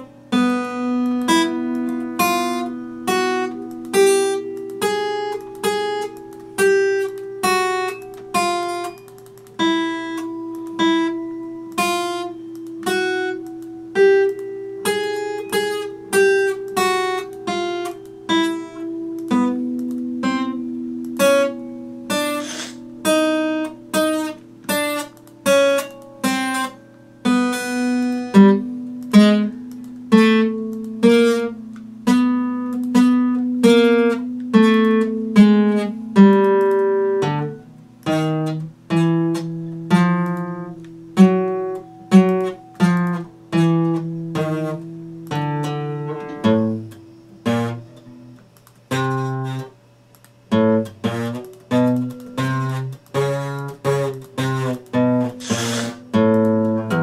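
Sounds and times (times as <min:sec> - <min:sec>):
acoustic guitar plucked: 0:00.0 - 0:57.0.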